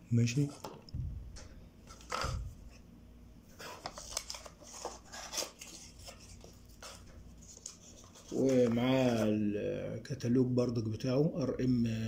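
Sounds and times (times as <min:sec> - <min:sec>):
cardboard packaging rustling: 0:03.6 - 0:09.3.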